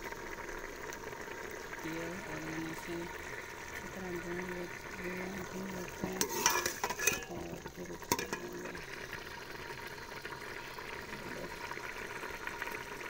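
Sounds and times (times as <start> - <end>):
curry bubbling and sizzling: 0.0 - 13.0
ladle stirring curry: 6.0 - 8.5
ladle clinking against pot: 6.2 - 7.5, 8.1 - 8.7.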